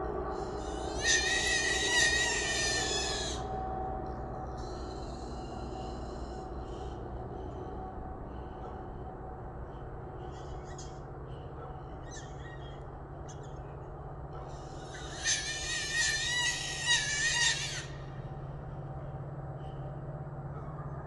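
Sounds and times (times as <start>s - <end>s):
steady low hum: 0.0s - 21.0s
animal squealing: 0.3s - 3.6s, 4.6s - 6.9s, 14.5s - 18.4s.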